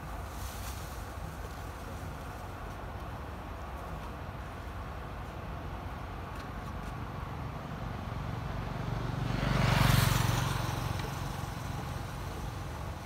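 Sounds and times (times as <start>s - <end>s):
vehicle driving past: 8.0s - 12.8s.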